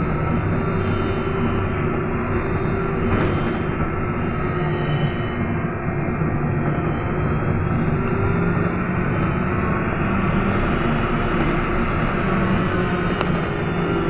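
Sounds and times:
trolleybus wheels rumbling: 0.0 - 8.7.

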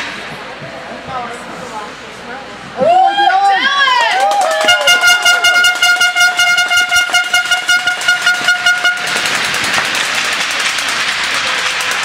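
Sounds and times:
crowd clapping: 4.0 - 12.0
air horn blaring in pulses: 4.4 - 9.4.

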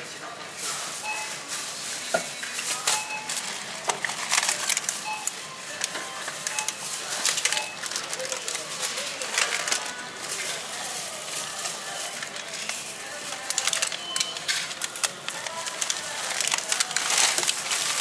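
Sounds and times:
plastic bags rustling: 0.5 - 18.0
short electronic beeps: 1.0 - 1.4.

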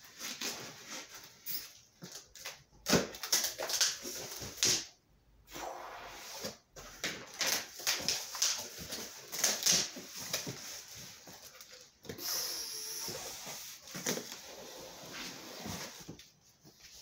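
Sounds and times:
box sliding and scraping: 13.1 - 16.2.

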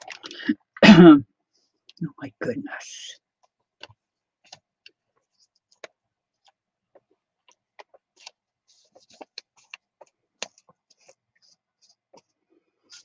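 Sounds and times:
paper crinkling: 7.6 - 13.0.

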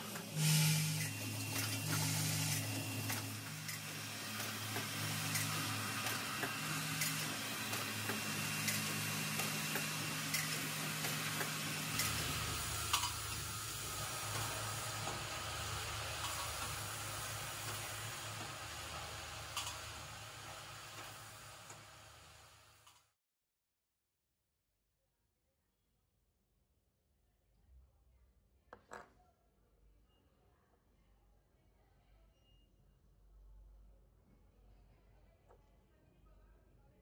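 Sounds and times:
machine hum: 0.0 - 22.7.

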